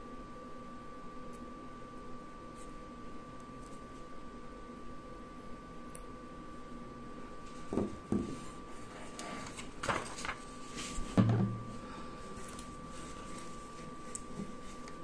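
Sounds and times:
paper sheet rustling: 0:08.4 - 0:11.2.

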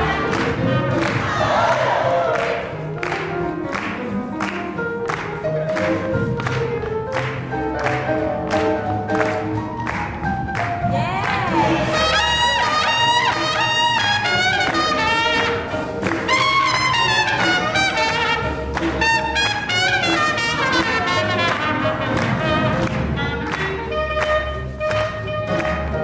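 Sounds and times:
upright bass: 0:00.0 - 0:26.0
trumpet lead line: 0:11.0 - 0:26.0.

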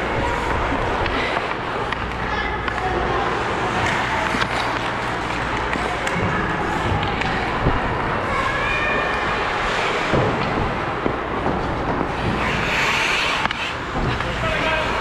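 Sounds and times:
steady rush of noise: 0:00.0 - 0:15.0
skates scraping on ice: 0:11.5 - 0:15.0
sharp knocks of sticks or puck: 0:12.0 - 0:14.4.

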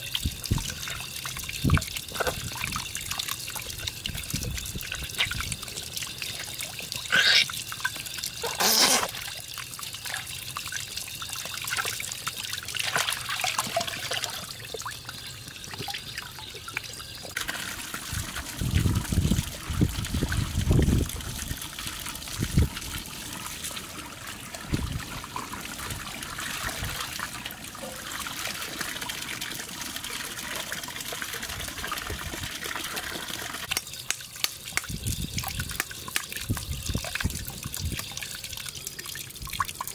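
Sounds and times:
water sloshing and splashing: 0:00.0 - 0:29.1
tap water running into metal basin: 0:00.0 - 0:39.9.

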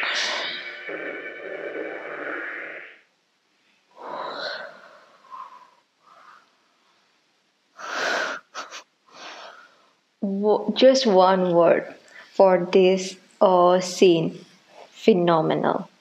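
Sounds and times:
woman breathing out: 0:03.9 - 0:06.6.

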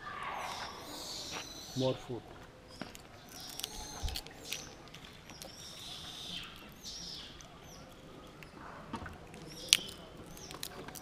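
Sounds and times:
high chirping animal calls: 0:00.0 - 0:02.1.

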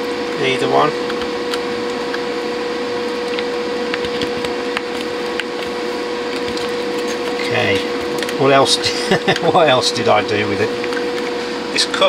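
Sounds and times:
constant whine: 0:00.0 - 0:12.0
steady background hum: 0:00.0 - 0:12.0.

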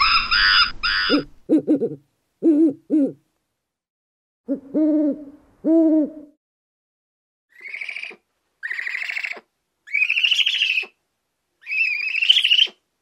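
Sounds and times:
gibbon whooping: 0:00.0 - 0:01.7.

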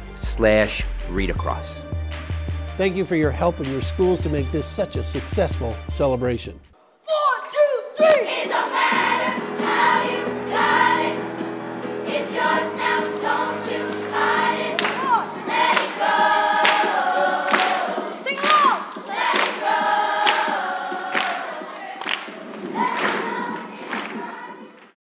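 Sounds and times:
musical accompaniment: 0:00.0 - 0:06.8, 0:08.2 - 0:24.9
children's chorus singing: 0:07.8 - 0:25.0.

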